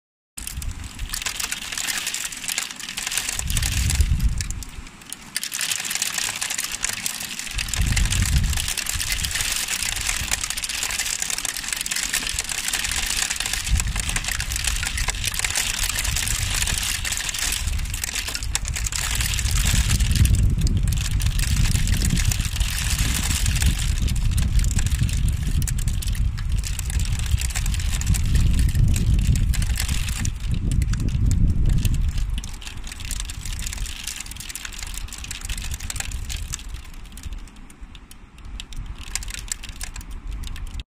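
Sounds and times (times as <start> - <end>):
hail on wet surface: 0.4 - 37.6, 38.5 - 40.8
low rumbling: 3.3 - 4.9, 7.4 - 37.3.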